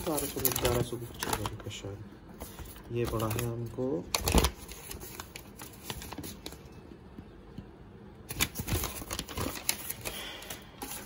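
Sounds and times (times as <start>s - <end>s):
paper rustling and crinkling: 0.0s - 6.7s, 8.3s - 11.0s.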